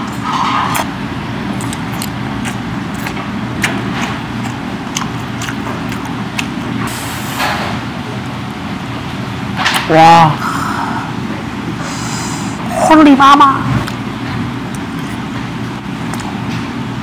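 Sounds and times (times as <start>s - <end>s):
close chewing and mouth clicks: 0.0s - 6.9s, 14.6s - 16.7s
low restaurant rumble: 0.0s - 17.0s.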